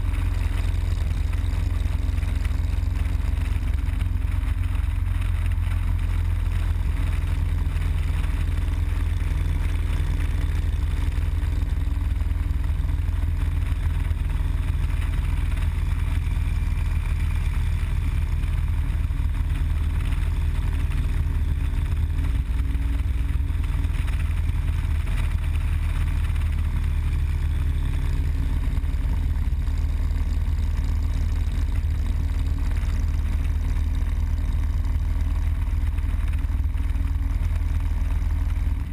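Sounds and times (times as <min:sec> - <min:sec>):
motorcycle engine cruising: 0:00.0 - 0:38.9.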